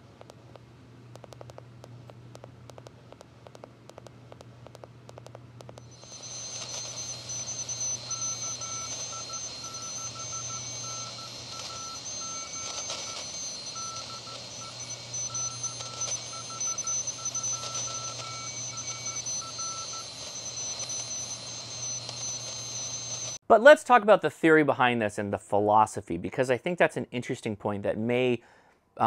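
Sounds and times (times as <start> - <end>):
static crackles: 0.0 - 23.4
morse code tone: 5.9 - 23.4
radio band hiss: 6.0 - 23.4.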